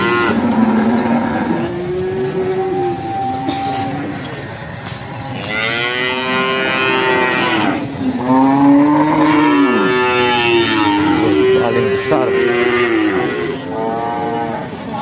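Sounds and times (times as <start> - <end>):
cattle mooing: 0.0 - 15.0.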